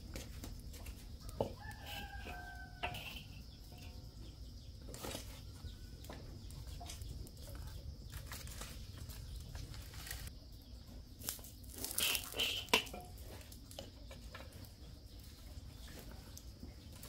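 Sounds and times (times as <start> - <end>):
wood fire crackling: 0.0 - 17.0
metal ladle scraping in wok: 1.8 - 4.0, 11.9 - 13.1.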